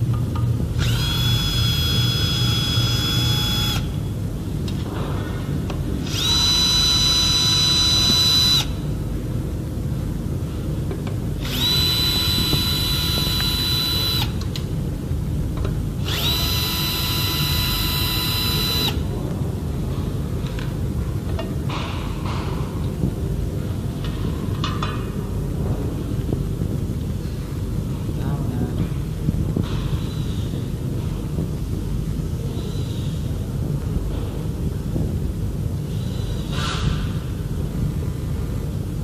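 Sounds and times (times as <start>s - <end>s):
cordless drill motor whining: 0.8s - 3.9s, 6.0s - 8.8s, 11.4s - 14.4s, 16.0s - 19.0s.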